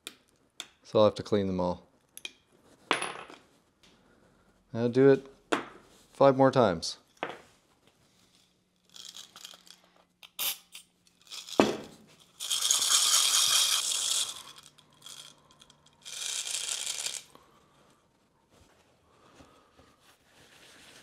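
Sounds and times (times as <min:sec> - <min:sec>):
steel balls rattling in a cup: 0:08.3 - 0:17.4.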